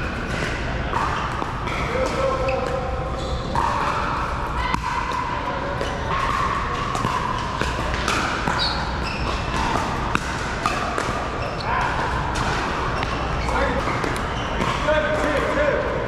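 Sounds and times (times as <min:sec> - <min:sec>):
paddles hitting plastic ball: 0:04.6 - 0:15.6.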